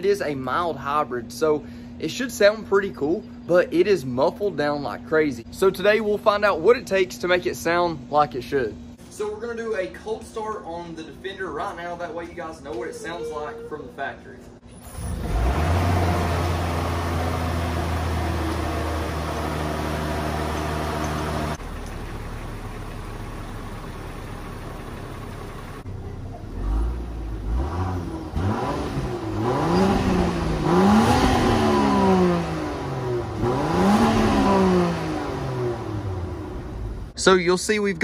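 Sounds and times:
car engine starting and idling: 14.7s - 37.2s
car engine revving: 15.0s - 22.9s, 26.4s - 37.1s.

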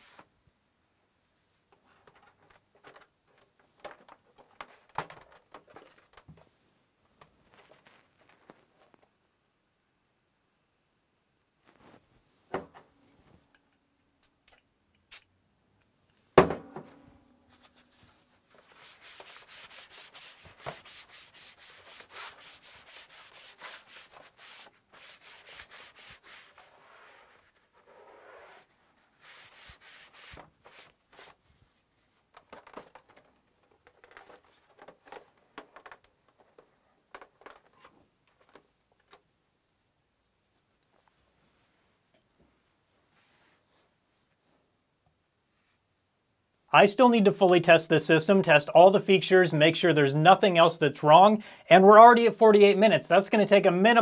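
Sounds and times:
cloth rubbing on plastic: 11.6s - 12.2s, 17.5s - 32.8s.

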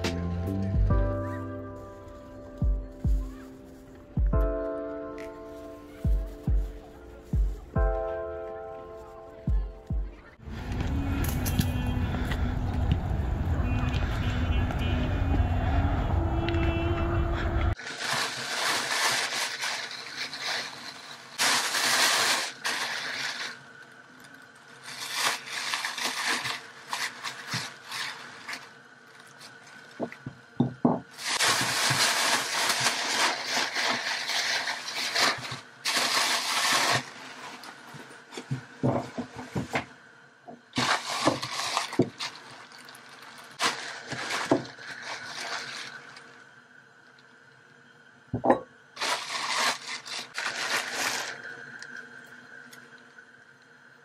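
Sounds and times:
plastic bags crinkling: 17.7s - 30.3s, 31.1s - 39.7s, 40.8s - 46.8s, 49.0s - 52.0s.

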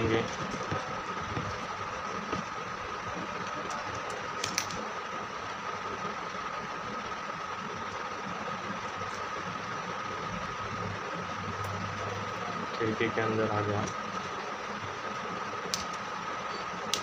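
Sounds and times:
background hum and hiss: 0.0s - 17.0s
paper and tape clicks: 3.4s - 4.9s, 15.6s - 16.0s.

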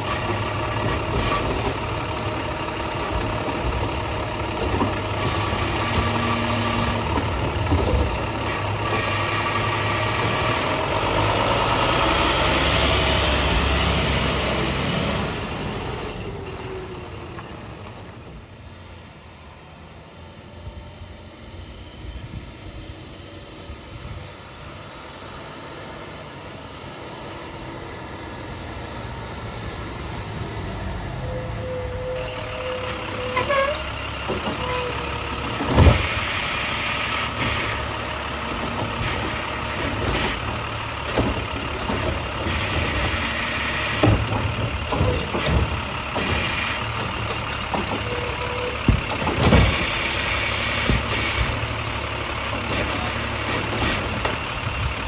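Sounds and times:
carts clunking against hopper: 0.0s - 11.6s, 32.2s - 54.9s
brake squeal: 0.0s - 17.5s, 30.5s - 55.0s
garbage truck diesel engine: 0.0s - 55.0s
hydraulic arm whine: 30.5s - 55.0s.

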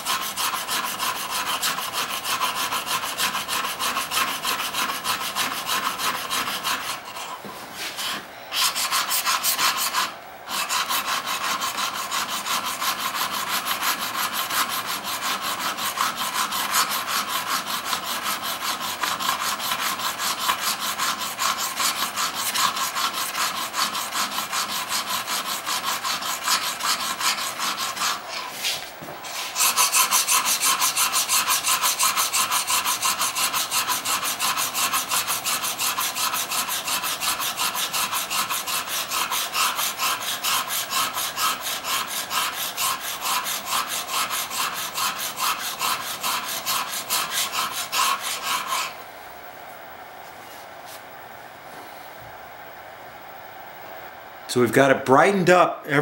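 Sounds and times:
blade scraping on sharpening stone: 29.3s - 49.0s.

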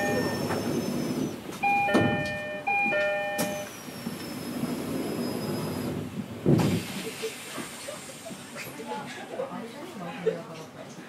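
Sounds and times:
two-tone chime: 0.0s - 0.5s, 1.6s - 3.7s.

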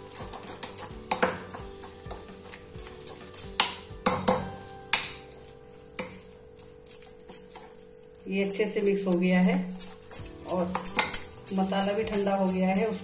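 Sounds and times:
spoon stirring thick wet mix: 0.0s - 13.0s
spoon clicking against glass: 9.8s - 13.0s.

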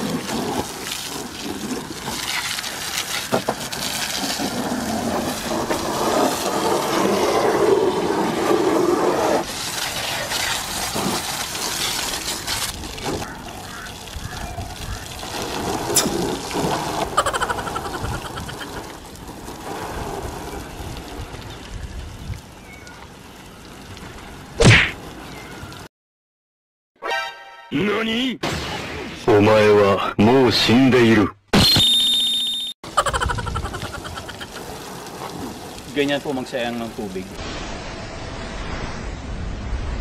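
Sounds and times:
hose spraying water on car: 0.0s - 21.9s, 33.0s - 37.5s.

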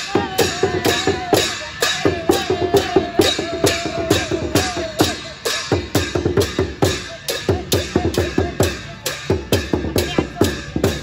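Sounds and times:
hand cymbals: 0.0s - 11.0s
large drum beating: 0.0s - 11.0s.

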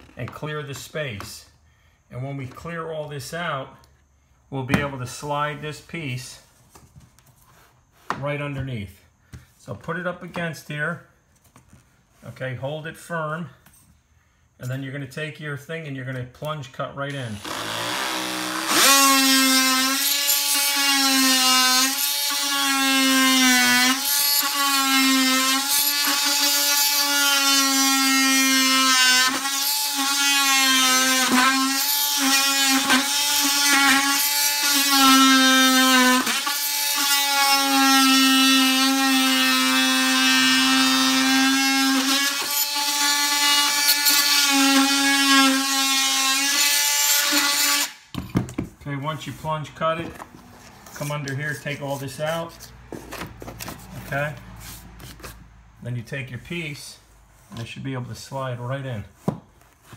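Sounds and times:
oscillating multi-tool buzzing whine: 17.4s - 48.0s.

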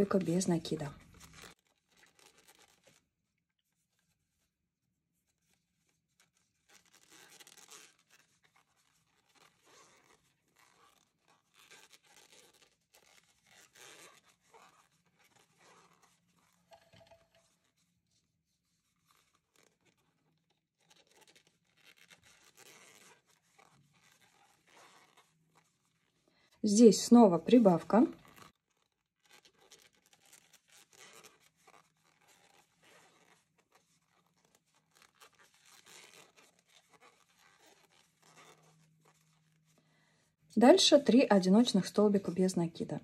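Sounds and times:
yarn rustling on crochet hook: 0.0s - 4.4s, 5.2s - 39.8s, 40.6s - 43.0s.

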